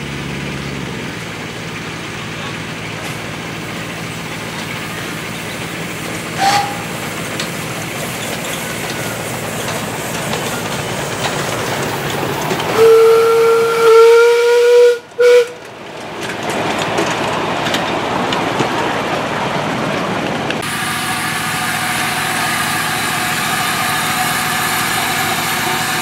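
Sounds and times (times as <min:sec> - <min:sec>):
running train rushing noise: 0:00.0 - 0:26.0
steam locomotive whistle: 0:06.3 - 0:07.2, 0:12.7 - 0:15.7, 0:20.6 - 0:26.0.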